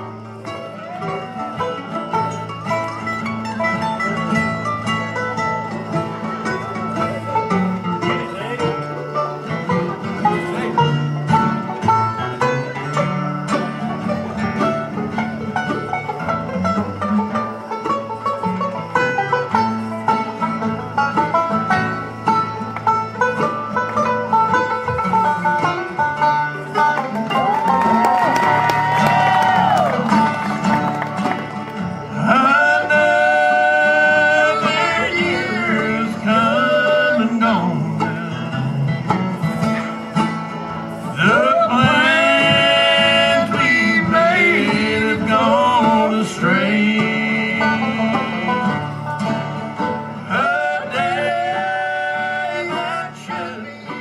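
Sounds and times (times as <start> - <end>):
bluegrass band playing: 0.0 - 54.0
strummed acoustic guitar: 0.0 - 54.0
person singing: 32.1 - 38.8, 41.2 - 48.8.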